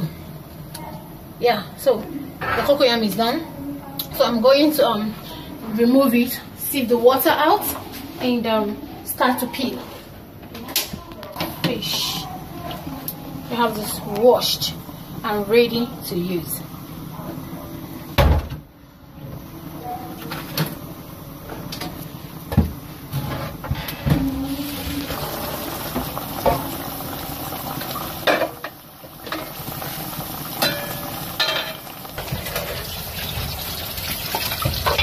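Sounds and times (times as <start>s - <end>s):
pot of stock bubbling: 24.2s - 35.0s
pots and utensils clinking: 27.7s - 35.0s.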